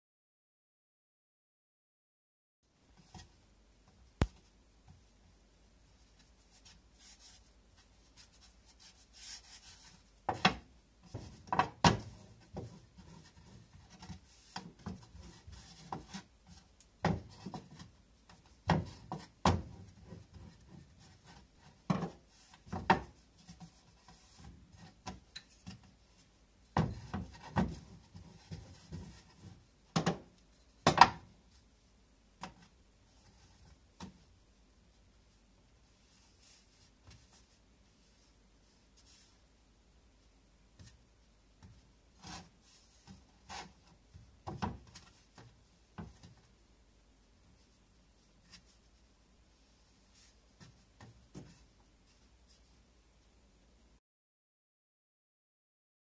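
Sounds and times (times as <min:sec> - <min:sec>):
rolling pin rolling dough: 0:06.2 - 0:26.0, 0:26.7 - 0:31.3.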